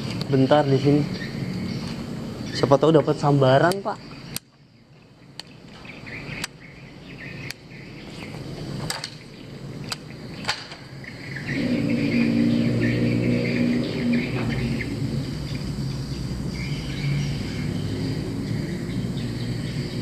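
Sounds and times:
insects chirping: 0.0 - 20.0
steady low hum: 0.0 - 20.0
sharp clicks: 3.6 - 4.6, 6.4 - 6.6, 7.4 - 7.6, 9.8 - 10.9.

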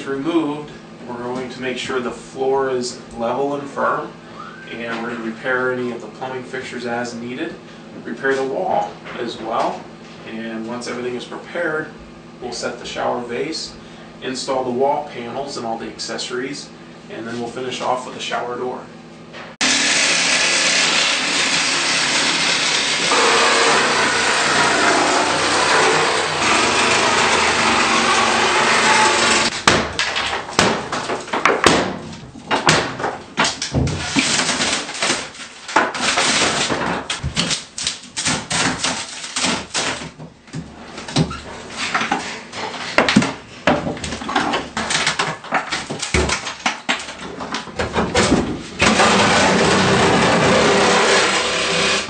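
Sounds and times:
power saw cutting fiberglass: 19.6 - 29.5, 48.8 - 52.0
fiberglass panels cracking and scraping: 22.6 - 40.2, 44.0 - 52.0.

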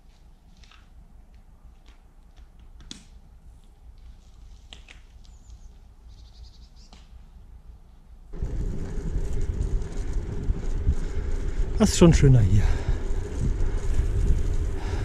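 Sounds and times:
wind and road rumble from bicycle: 8.3 - 15.0
wind rumble on microphone: 8.3 - 15.0.

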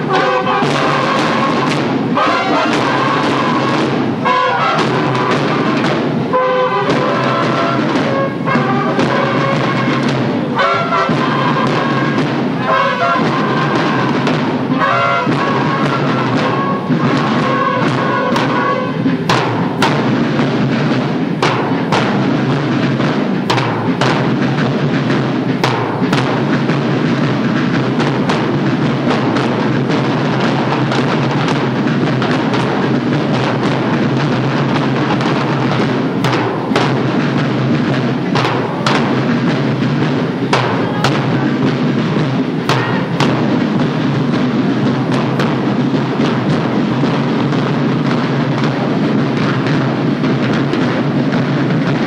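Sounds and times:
drum and bugle band march: 0.0 - 52.0
sharp drum hits: 0.0 - 52.0.

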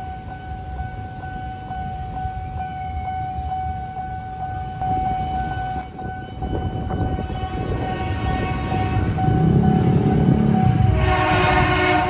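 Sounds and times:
level crossing alarm tone: 0.0 - 12.0
motorcycles and cars idling: 8.2 - 12.0.

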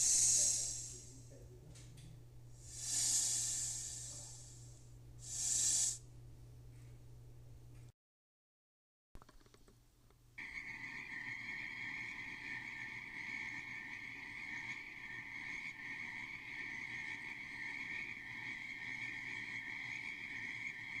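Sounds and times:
frogs calling in chorus: 0.0 - 1.0, 2.7 - 4.4, 5.2 - 6.0, 10.4 - 21.0.

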